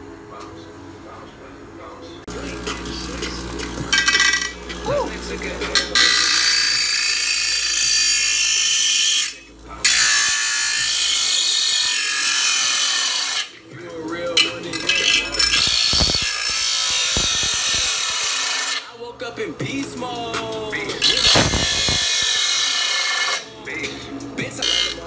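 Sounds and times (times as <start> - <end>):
power tool whining: 2.3 - 13.5, 14.7 - 18.9, 21.0 - 25.0.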